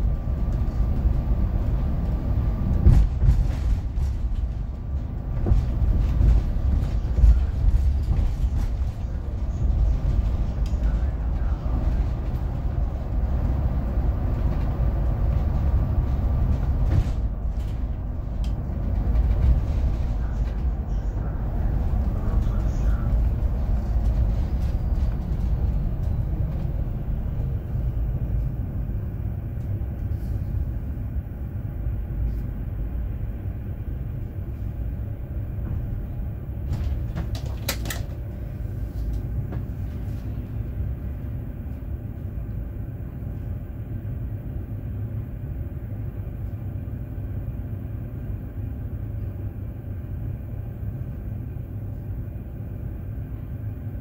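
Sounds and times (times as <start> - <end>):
bus engine and road rumble: 0.0 - 54.0
sharp clicks and rattles: 36.8 - 38.2.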